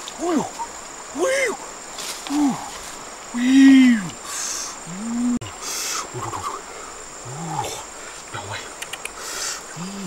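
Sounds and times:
man's wordless exclamations: 3.4s - 4.1s.

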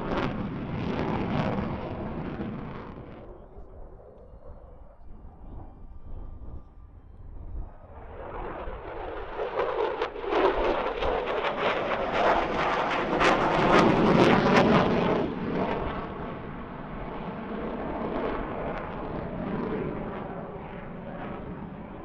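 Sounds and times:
jet engines roaring with crackling: 0.0s - 22.0s.

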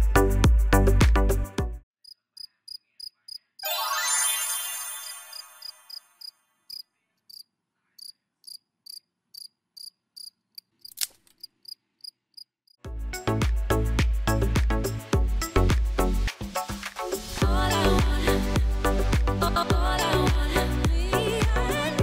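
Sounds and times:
sparkling chime effect: 3.6s - 6.2s
crickets chirping: 5.6s - 12.5s
sharp click: 10.9s - 11.4s
music with heavy bass beat: 12.9s - 21.8s.

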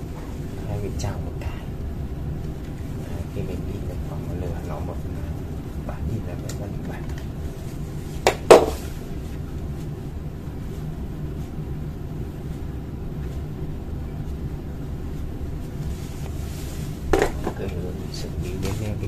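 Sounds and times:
steady low hum: 0.0s - 19.0s
plastic cartridge knocking on desk: 8.2s - 8.8s.

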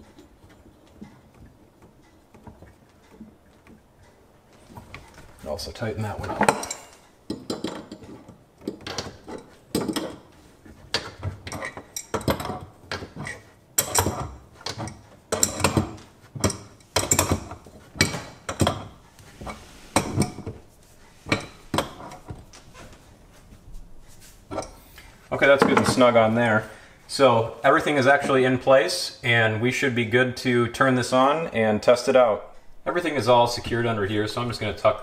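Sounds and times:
wrench clanking on metal fitting: 6.2s - 10.2s, 10.9s - 19.0s.

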